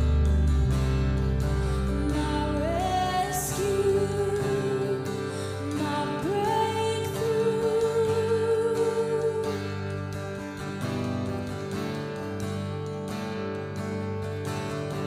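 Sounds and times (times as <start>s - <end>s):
bass guitar: 0.0s - 15.0s
guitar: 0.0s - 15.0s
woman singing: 1.6s - 10.2s.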